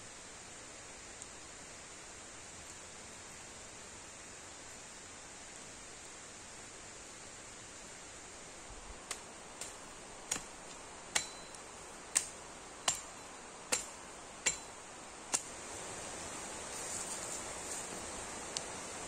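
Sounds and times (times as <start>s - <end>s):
hatchet chopping wood: 9.1s - 15.6s.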